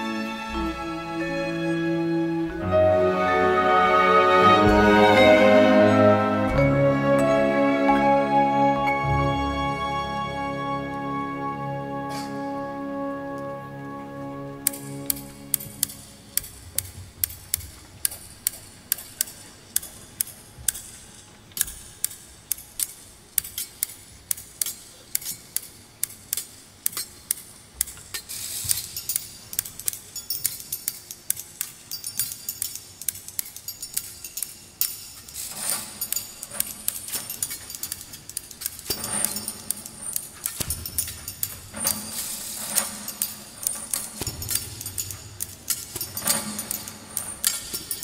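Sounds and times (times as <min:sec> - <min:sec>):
shears snipping metallic clicks: 0:14.7 - 0:48.0.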